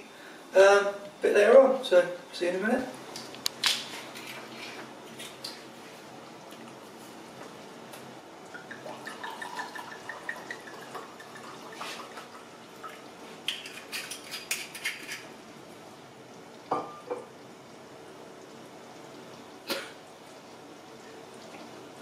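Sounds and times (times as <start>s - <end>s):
wine glugging into glass: 8.6s - 11.6s.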